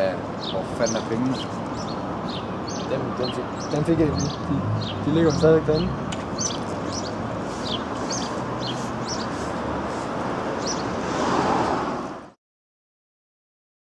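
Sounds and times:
traffic rushing: 0.0s - 12.4s
small bird chirping: 0.4s - 9.4s.

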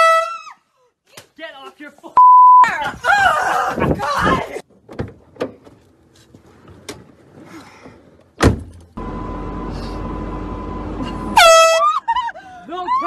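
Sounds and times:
car door slamming: 8.4s - 8.8s.

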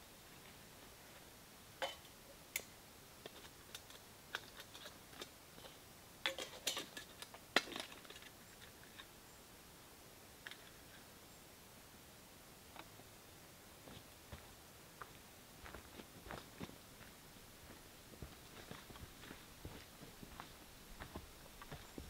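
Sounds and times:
metal cooking pots clinking: 1.8s - 2.1s, 6.3s - 7.1s.

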